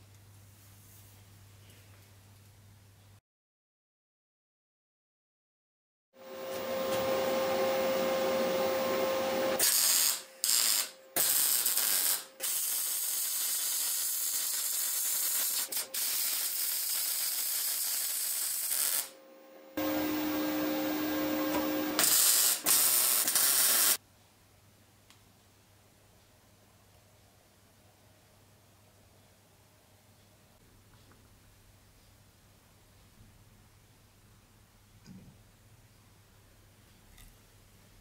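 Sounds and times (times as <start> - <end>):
electric welding arc crackling: 9.4 - 19.2, 19.8 - 24.0.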